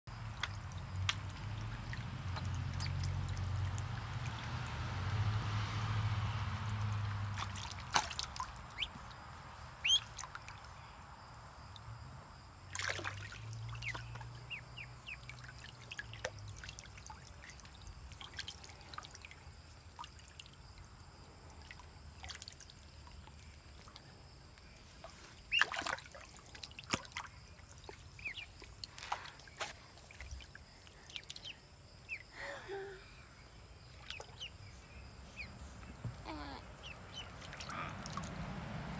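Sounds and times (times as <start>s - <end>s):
water trickling and splashing: 0.1s - 38.9s
ducklings peeping: 8.7s - 9.0s, 9.8s - 10.3s, 13.7s - 16.0s, 27.8s - 28.6s, 36.2s - 38.2s.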